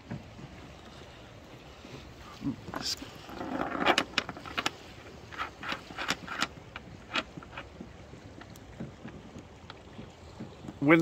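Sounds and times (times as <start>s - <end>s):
anchor chain clanking over windlass: 1.9s - 11.0s.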